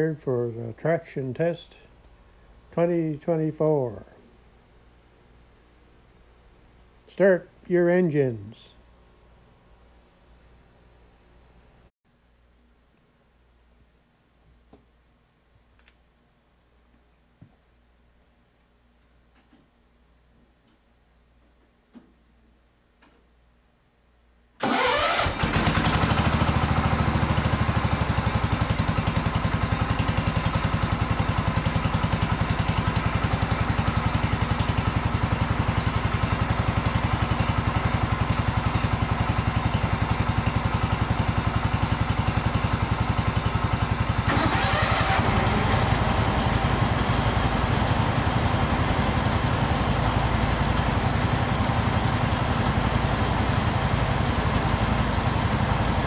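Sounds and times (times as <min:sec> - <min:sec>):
garden tractor engine idling: 0:24.6 - 0:56.0
second tractor engine running: 0:24.6 - 0:56.0.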